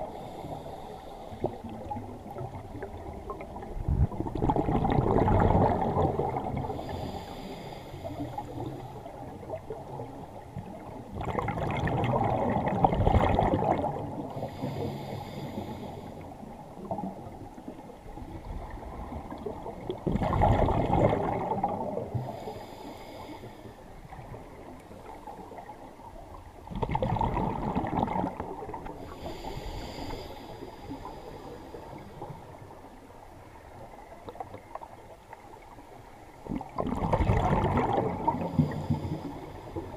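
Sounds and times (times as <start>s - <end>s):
bubbling exhaled air: 0.0s - 9.8s, 11.1s - 16.1s, 18.4s - 23.4s, 26.7s - 32.3s, 36.6s - 39.9s
hiss of inhalation: 6.8s - 8.7s, 29.1s - 32.0s.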